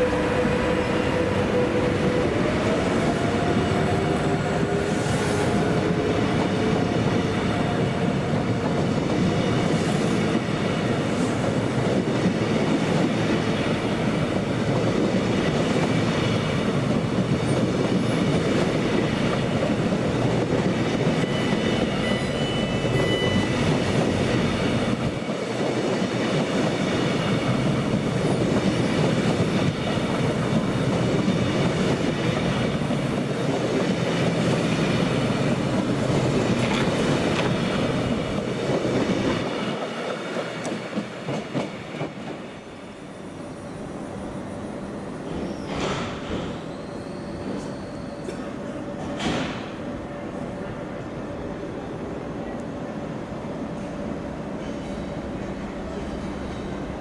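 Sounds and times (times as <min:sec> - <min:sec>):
clickety-clack over rail joints: 0:00.0 - 0:42.7, 0:45.3 - 0:46.8, 0:47.5 - 0:49.8
train wheels rumbling on rail: 0:00.0 - 0:57.0
faint high wheel squeal: 0:21.2 - 0:23.8, 0:43.0 - 0:48.8.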